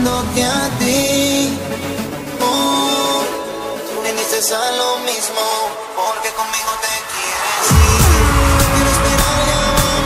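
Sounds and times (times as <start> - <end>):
electronic music: 0.0 - 10.0
heavy bass line: 7.7 - 10.0.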